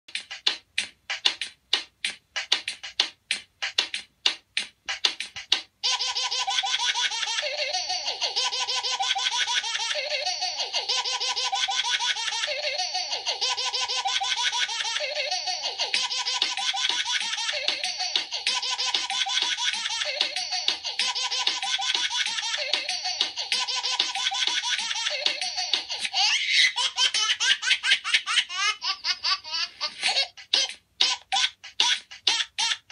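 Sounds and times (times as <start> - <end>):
music: 0.1 - 26.2
high-pitched laughter: 5.8 - 32.9.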